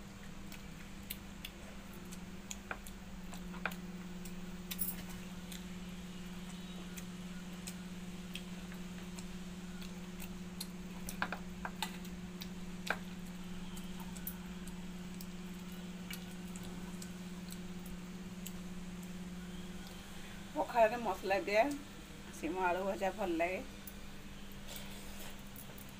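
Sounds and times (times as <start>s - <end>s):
steady low hum: 0.0s - 25.9s
chewing smacks: 0.2s - 4.8s, 6.9s - 19.2s.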